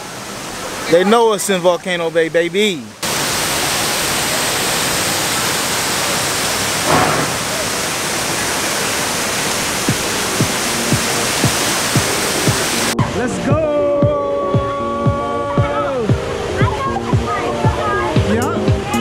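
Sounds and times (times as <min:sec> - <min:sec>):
falling water rushing: 0:00.0 - 0:19.0
music with a beat: 0:09.9 - 0:16.4, 0:17.1 - 0:19.0.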